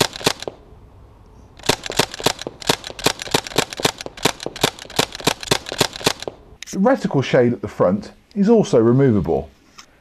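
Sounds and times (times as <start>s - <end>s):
airsoft gun firing rapidly: 0.0s - 0.6s, 1.6s - 6.4s.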